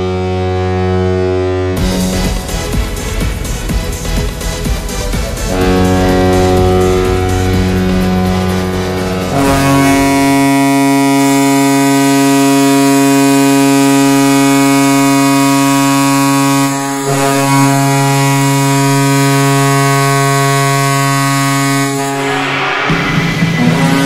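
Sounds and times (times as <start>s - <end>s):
goal horn blasts: 0.0s - 3.6s, 5.4s - 24.0s.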